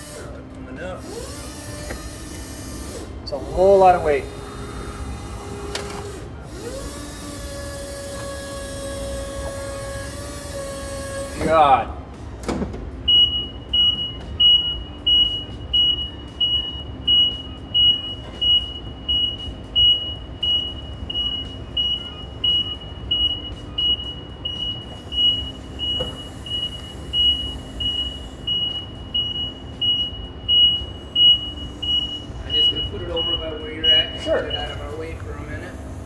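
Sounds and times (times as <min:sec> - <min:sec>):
low forklift hum: 0:00.0 - 0:36.0
forklift backup alarm beeping: 0:13.0 - 0:35.7.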